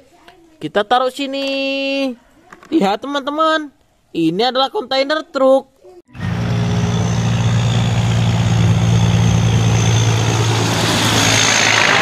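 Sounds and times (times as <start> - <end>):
road and tyre noise: 6.1 - 12.0
truck diesel engine droning: 6.1 - 12.0.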